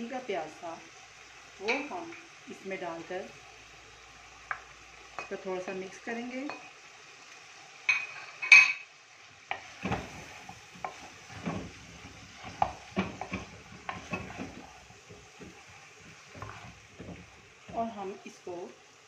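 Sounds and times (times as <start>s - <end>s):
meat sizzling: 0.0s - 19.0s
wooden spoon scraping clay pot: 9.5s - 17.9s.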